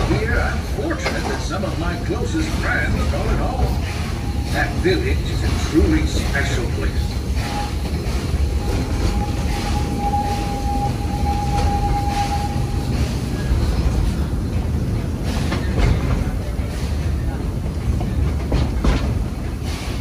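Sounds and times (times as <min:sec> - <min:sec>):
wheels squealing on rail: 0:00.0 - 0:14.2
train low rumble: 0:00.0 - 0:20.0.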